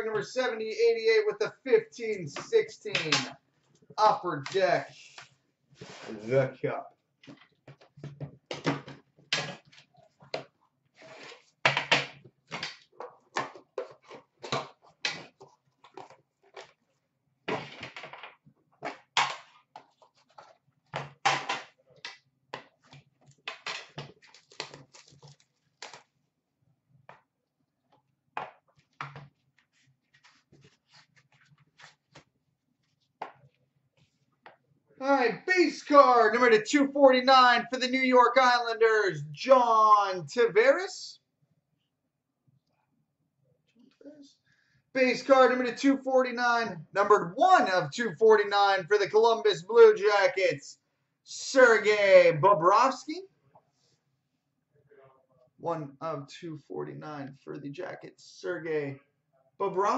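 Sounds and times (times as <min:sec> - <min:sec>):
plastic wrapping crinkling: 0:24.1 - 0:26.1.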